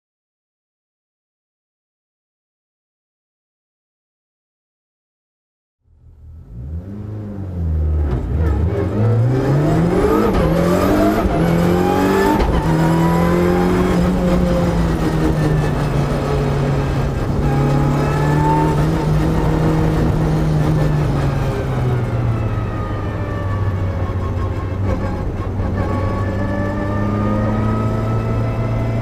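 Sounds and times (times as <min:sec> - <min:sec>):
race car engine accelerating: 0:06.0 - 0:29.0.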